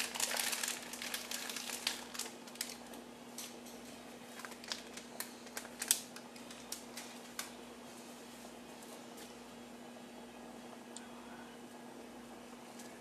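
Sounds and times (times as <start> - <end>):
dry pasta and packaging clicking: 0.0 - 3.7, 4.3 - 7.6.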